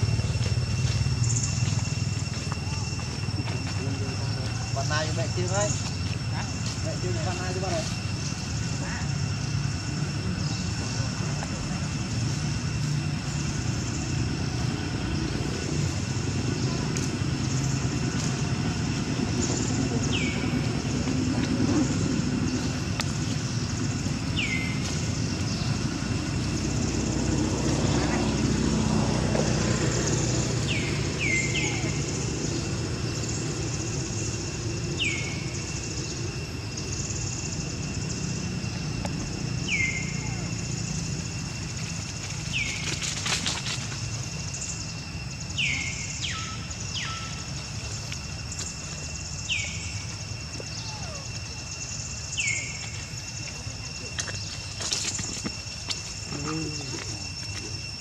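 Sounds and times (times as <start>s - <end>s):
low outdoor rumble: 0.0s - 58.0s
crackling rustle: 41.6s - 44.4s
whistled animal call: 50.6s - 51.7s.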